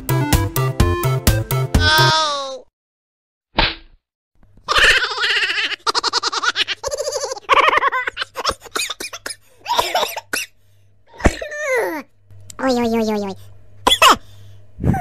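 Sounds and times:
high-pitched laughter: 0:04.7 - 0:08.8.

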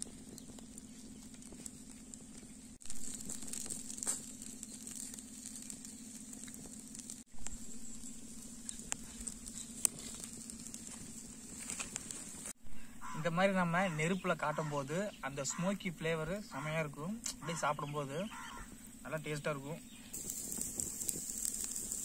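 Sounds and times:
low hum: 0:00.0 - 0:17.4
wood fire crackling: 0:00.0 - 0:17.4, 0:18.3 - 0:22.0.

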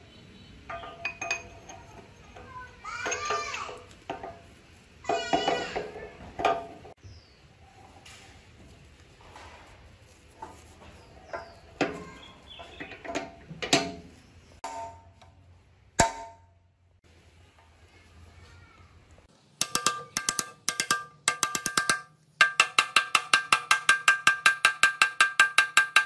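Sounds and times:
hammer tapping on steel rod: 0:19.6 - 0:26.0.

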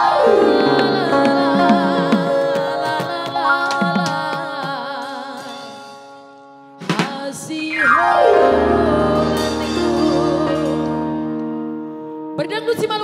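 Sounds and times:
electronic keyboard melody: 0:00.0 - 0:05.5, 0:07.7 - 0:12.5
sharp drum strokes: 0:00.7 - 0:05.0.

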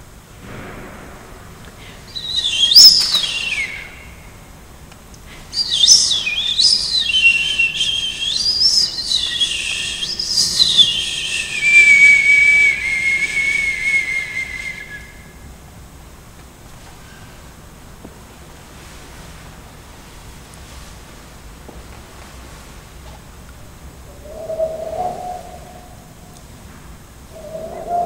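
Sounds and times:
high whistle-like electronic tones: 0:24.2 - 0:26.1.

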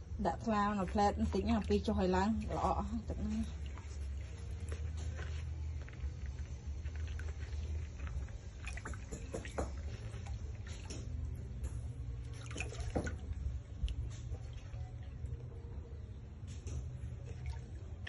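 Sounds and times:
water dripping: 0:00.2 - 0:15.6
otter splashing in water: 0:06.9 - 0:11.6, 0:12.2 - 0:15.2
steady low rumble: 0:09.8 - 0:18.0.

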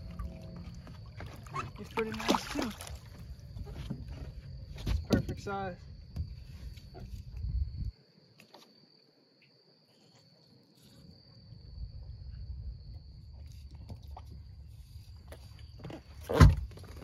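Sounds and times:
low rumble: 0:00.0 - 0:01.5.

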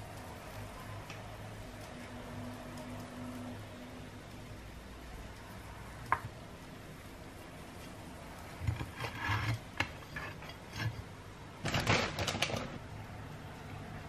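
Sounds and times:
scraping on a wooden board: 0:08.6 - 0:11.1.

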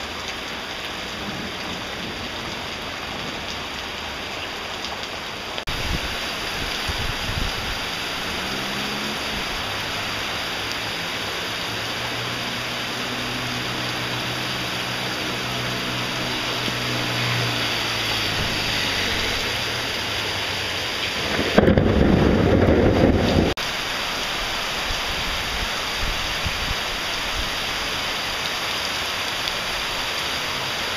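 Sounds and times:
deep rushing water: 0:00.0 - 0:30.9
heavy rain pouring: 0:00.0 - 0:30.9
low rumble of thunder: 0:21.2 - 0:23.6.

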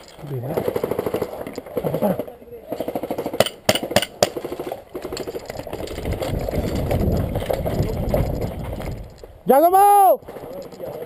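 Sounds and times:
low rumble with fast rattling: 0:05.1 - 0:09.3.

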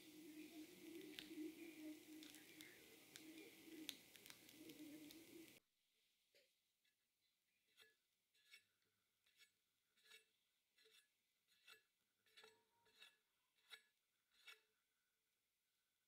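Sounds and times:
spatula swishing over cream: 0:00.0 - 0:05.6, 0:07.7 - 0:14.7.

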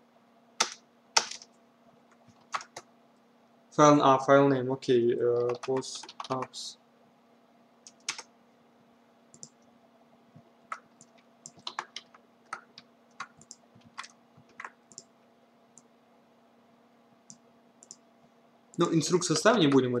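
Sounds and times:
faint steady hum: 0:00.0 - 0:20.0
computer keyboard keystrokes: 0:00.6 - 0:01.5, 0:02.3 - 0:02.8, 0:05.4 - 0:06.6, 0:07.9 - 0:08.3, 0:09.4 - 0:09.6, 0:10.7 - 0:15.1, 0:17.3 - 0:18.0.

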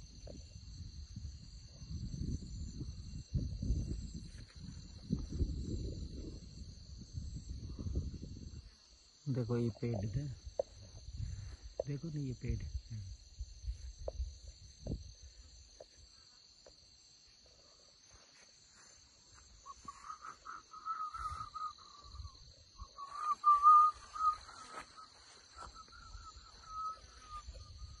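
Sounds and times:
wind rumbling on microphone: 0:00.0 - 0:15.8, 0:19.5 - 0:28.0
insects buzzing: 0:00.0 - 0:28.0
wavering whistle-like tone: 0:19.6 - 0:28.0.

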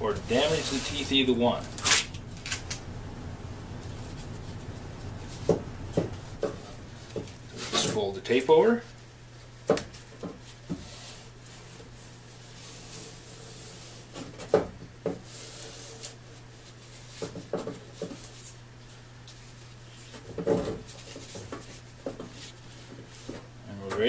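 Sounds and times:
steady low hum: 0:00.0 - 0:24.0
tape rustling and rubbing: 0:00.2 - 0:08.0, 0:15.2 - 0:23.5.

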